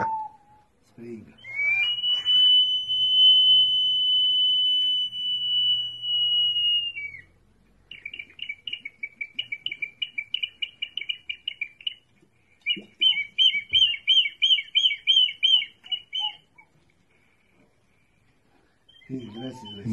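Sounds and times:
long high whistle: 0.0 - 0.7, 1.4 - 7.3
warbling trill of chirps: 18.9 - 19.9.

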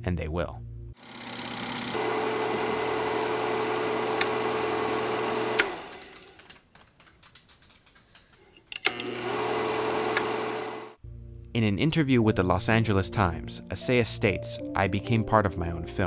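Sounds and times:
projector motor humming: 1.0 - 6.5, 8.9 - 11.0
projector switch click: 4.1 - 4.4, 10.0 - 10.5.

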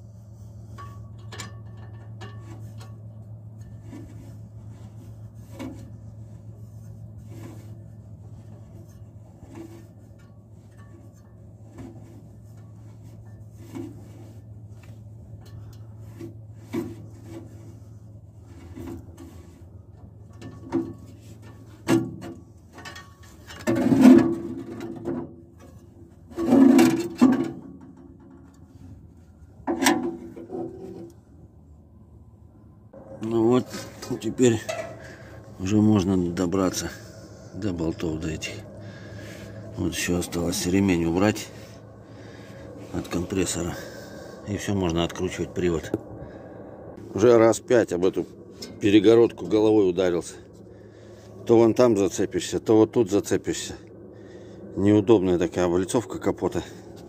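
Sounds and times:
metal scrapes and clanks: 0.0 - 31.2, 33.0 - 45.8.

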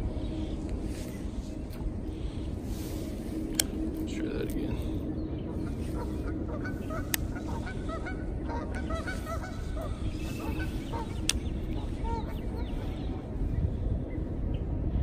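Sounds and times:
geese honking: 5.5 - 13.1.

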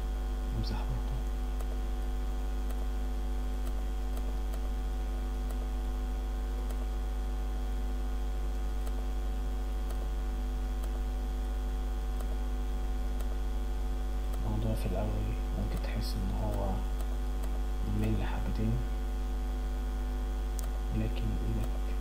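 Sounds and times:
electrical mains hum: 0.0 - 22.0
faint ticks: 15.6 - 18.2.

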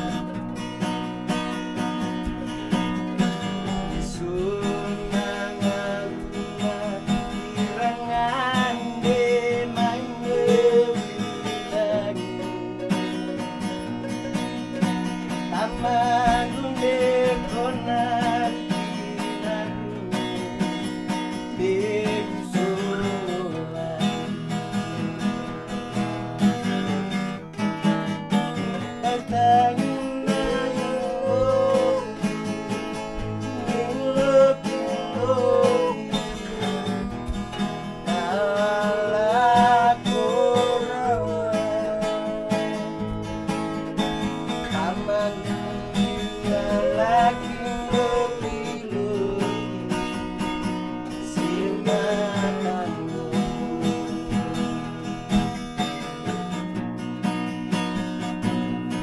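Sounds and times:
person singing: 0.0 - 0.4, 2.4 - 24.5, 28.6 - 37.2, 38.0 - 43.0, 44.6 - 50.2, 51.1 - 54.6
acoustic guitars strumming: 0.0 - 59.0.

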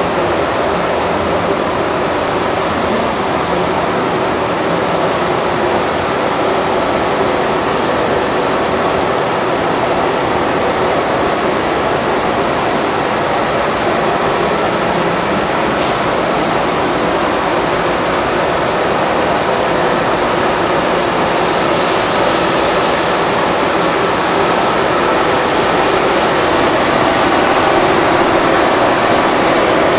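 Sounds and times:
packaging machine rushing: 13.6 - 29.9.

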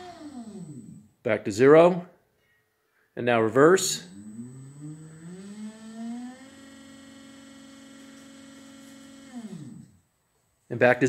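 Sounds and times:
electric motor whining: 0.0 - 1.2, 3.7 - 10.0.

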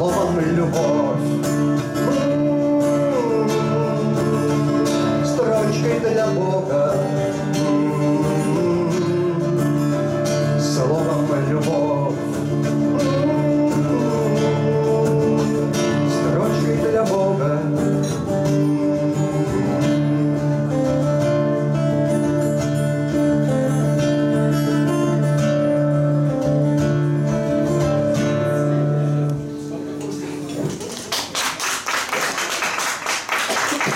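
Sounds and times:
two acoustic guitars playing: 0.0 - 30.8.

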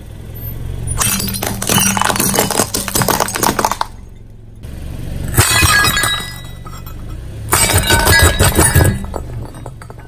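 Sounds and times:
ceramic cracking under car tyre: 1.0 - 4.1, 7.5 - 10.0.

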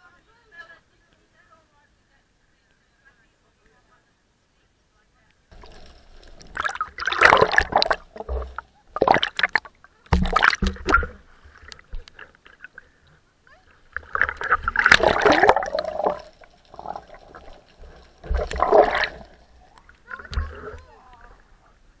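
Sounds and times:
water splashing and gurgling: 5.5 - 12.8, 13.6 - 21.6.

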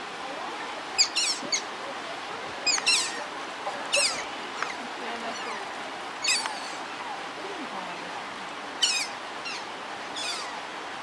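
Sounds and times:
otters squeaking chirps: 1.0 - 1.7, 2.6 - 3.2, 3.9 - 5.6, 6.2 - 6.8, 8.8 - 10.6.

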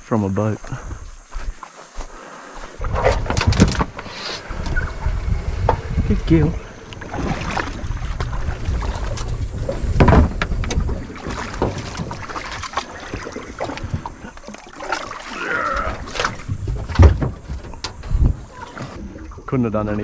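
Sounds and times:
feet splashing in shallow water: 6.4 - 9.9, 10.7 - 16.9
heavy thump: 9.8 - 10.9.

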